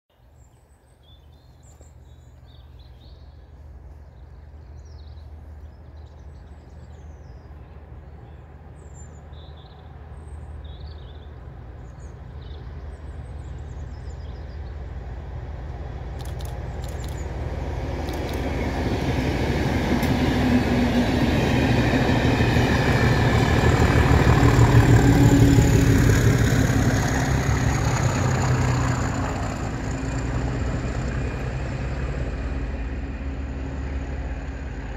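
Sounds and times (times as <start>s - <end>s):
diesel locomotive engine: 0.7s - 34.9s
train wheels: 16.1s - 31.4s
small birds chirping: 16.2s - 17.4s.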